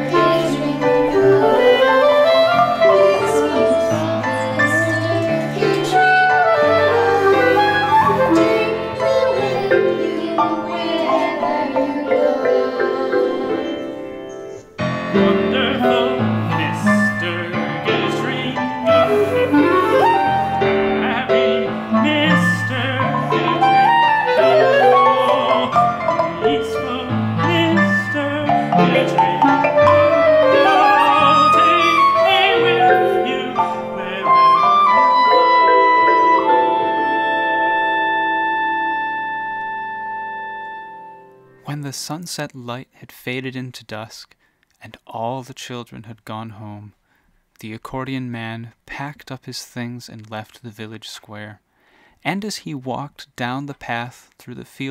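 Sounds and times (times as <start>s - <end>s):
woodwind melody: 0.0s - 41.6s
piano: 0.0s - 41.7s.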